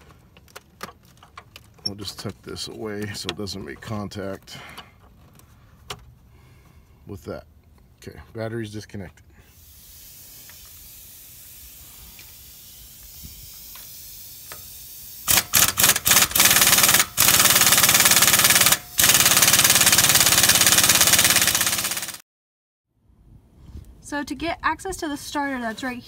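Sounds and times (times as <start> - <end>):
air impact wrench hammering: 9.6 - 22.2.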